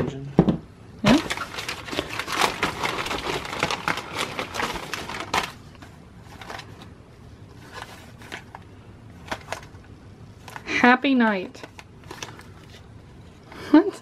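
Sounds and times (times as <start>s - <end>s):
plastic bag crinkling: 1.1s - 6.9s.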